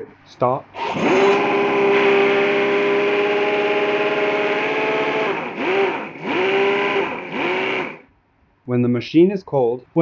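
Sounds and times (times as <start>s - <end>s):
model engine running: 0.8s - 8.0s.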